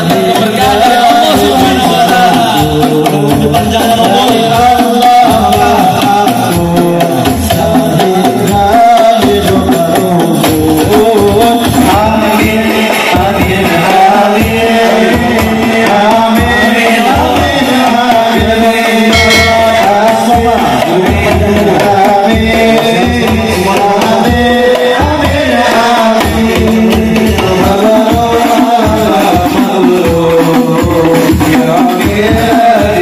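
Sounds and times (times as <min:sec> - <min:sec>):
frame drums beating: 0:00.0 - 0:33.0
men singing in unison: 0:00.0 - 0:33.0.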